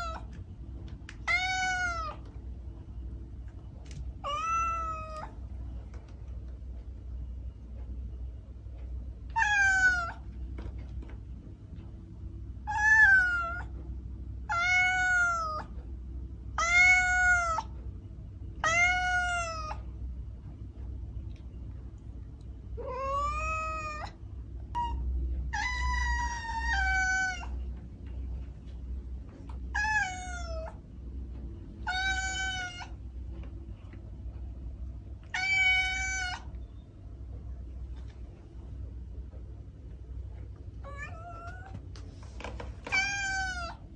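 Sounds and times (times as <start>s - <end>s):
kitten meowing: 1.2s - 2.2s, 42.9s - 43.8s.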